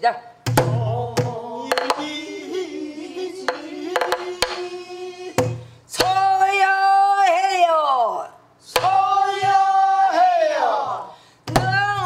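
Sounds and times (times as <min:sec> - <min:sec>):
woman singing: 0:06.0 - 0:08.4, 0:11.5 - 0:12.0.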